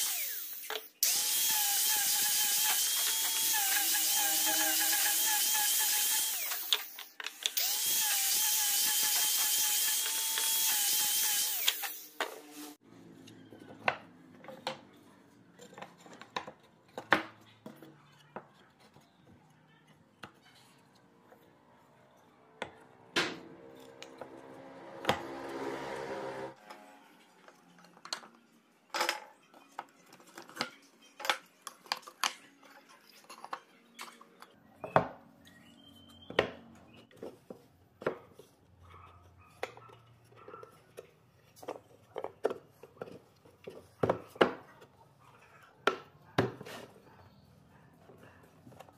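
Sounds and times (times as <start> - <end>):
angle grinder sanding wood: 0.0 - 12.8.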